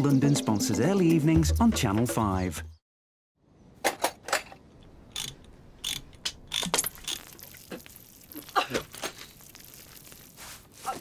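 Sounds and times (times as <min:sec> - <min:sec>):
ratchet wrench clicking: 0:05.1 - 0:07.3.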